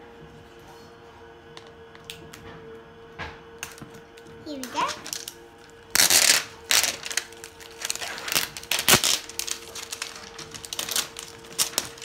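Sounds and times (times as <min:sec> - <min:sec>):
plastic packaging crinkling: 0:03.6 - 0:12.0.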